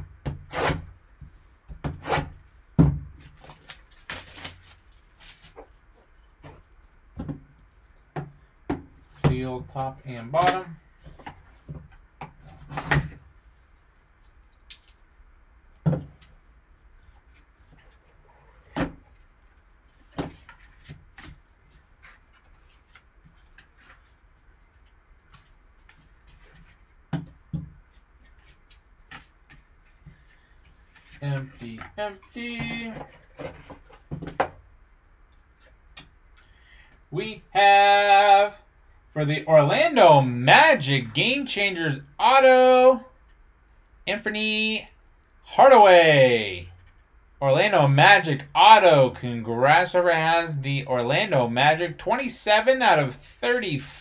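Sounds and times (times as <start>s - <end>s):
paper and card rustling: 3.2s - 6.7s
plastic shrink wrap crinkling: 3.4s - 5.7s.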